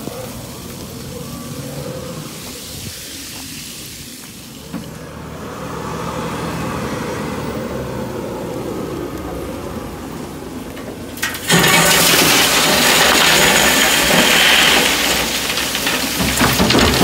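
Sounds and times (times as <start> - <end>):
gravel pouring into metal truck: 11.1 - 17.0.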